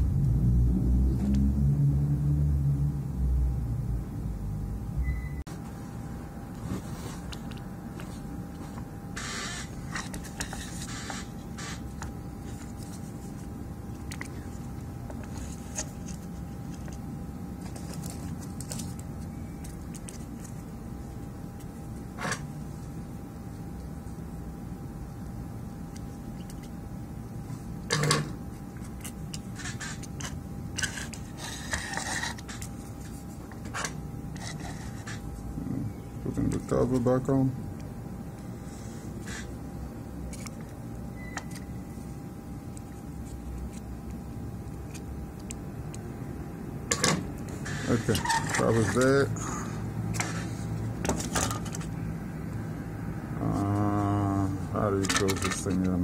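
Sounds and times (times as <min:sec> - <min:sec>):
low background hum: 0:00.0 - 0:56.0
circuit board scraping on wood: 0:09.2 - 0:12.9, 0:29.6 - 0:35.3.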